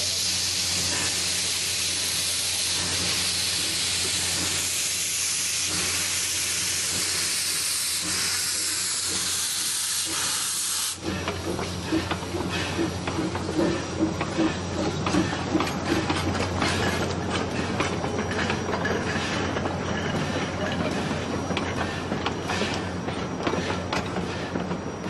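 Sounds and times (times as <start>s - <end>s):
loud steam hiss: 0.0s - 11.8s
train wheels clicking: 0.7s - 25.0s.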